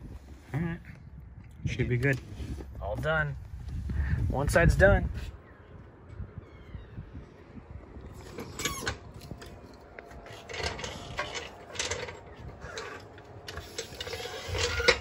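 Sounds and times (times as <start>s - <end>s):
metal tools clinking: 8.2s - 15.0s.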